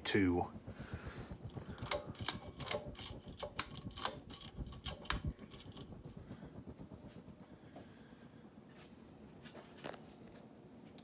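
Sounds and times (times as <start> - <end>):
fan pull chain clicking and rattling: 1.4 - 6.3.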